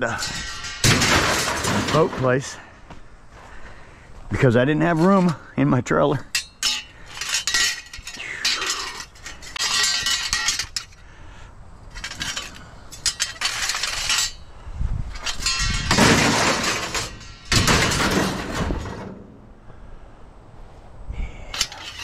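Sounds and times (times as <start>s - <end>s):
scrap metal clanking: 0.0s - 2.7s, 6.3s - 11.0s, 11.9s - 14.5s, 15.1s - 19.4s, 21.5s - 22.0s.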